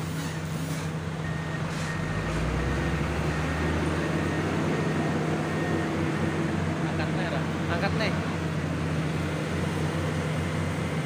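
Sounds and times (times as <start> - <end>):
diesel engine running: 0.0 - 11.0
high warning beep: 1.2 - 6.0.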